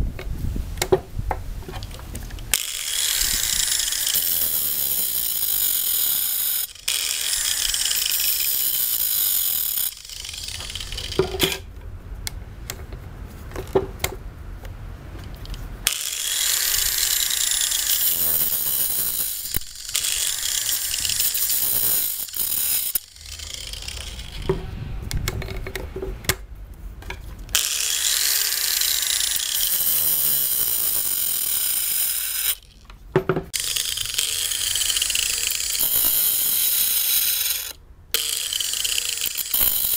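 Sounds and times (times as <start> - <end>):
angle grinder whining: 2.4 - 11.7, 15.4 - 26.4, 27.5 - 32.8, 33.5 - 39.9
low rumble: 23.2 - 27.4.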